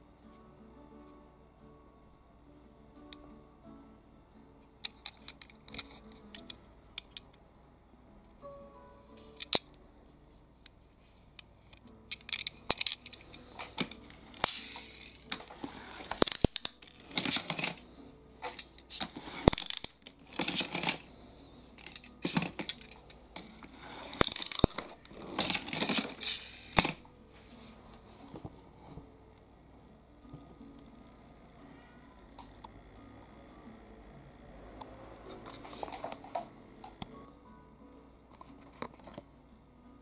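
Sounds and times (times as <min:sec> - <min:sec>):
metal toy car clicks: 0:04.8 - 0:07.3, 0:09.4 - 0:09.7, 0:11.7 - 0:17.8, 0:18.4 - 0:21.0, 0:21.8 - 0:27.0
toy car wheels whirring: 0:12.3 - 0:17.8, 0:18.4 - 0:21.1, 0:21.8 - 0:27.0.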